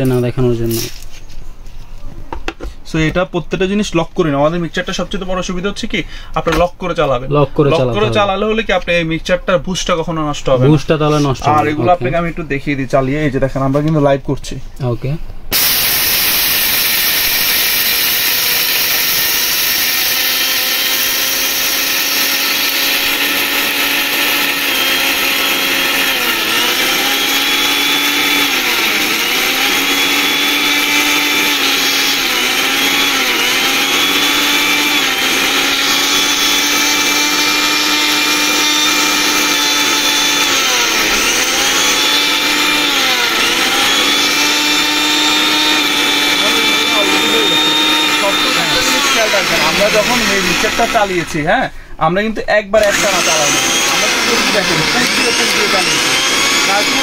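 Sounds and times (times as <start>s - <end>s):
mixer grinder motor grinding: 15.5s - 51.4s, 52.8s - 57.0s.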